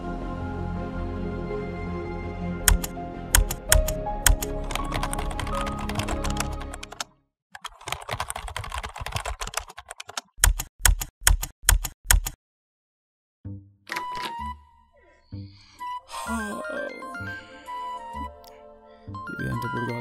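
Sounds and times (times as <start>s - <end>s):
background music: 0.0s - 7.1s, 13.5s - 20.0s
laptop keyboard typing: 2.7s - 12.4s.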